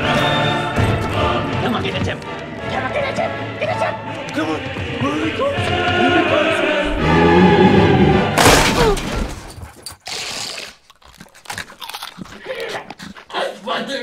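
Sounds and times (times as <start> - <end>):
dramatic music: 0.0 - 9.0
glass door shattering: 8.4 - 9.7.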